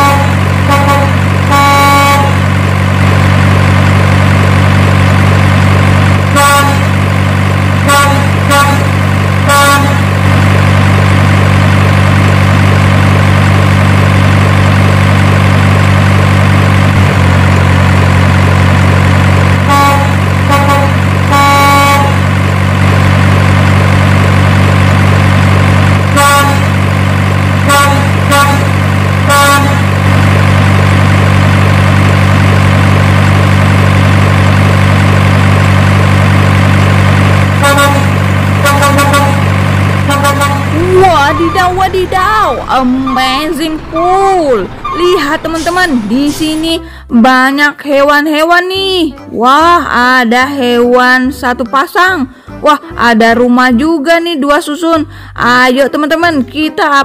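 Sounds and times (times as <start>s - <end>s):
truck horn honks: 0.0s - 2.6s, 6.3s - 7.0s, 7.8s - 10.2s, 19.6s - 22.3s, 26.1s - 26.8s, 27.6s - 30.0s, 37.5s - 46.1s
diesel truck engine drone: 0.0s - 56.8s.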